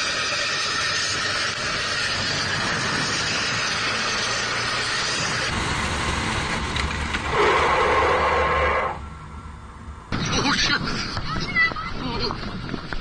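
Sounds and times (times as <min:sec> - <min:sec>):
engine and traffic noise: 0:00.0 - 0:13.0.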